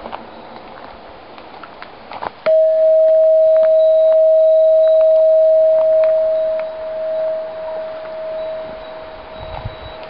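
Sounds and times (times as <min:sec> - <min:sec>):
metal bell ringing clear tone: 0:02.5 - 0:10.0.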